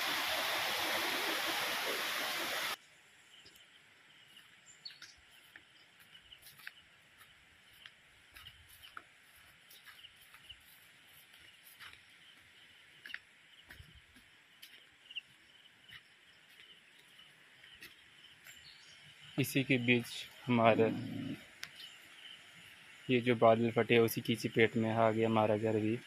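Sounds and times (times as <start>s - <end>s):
insects chirring: 2.8s - 26.0s
bird chirps: 3.2s - 23.7s
soft ticks: 21.6s - 21.9s.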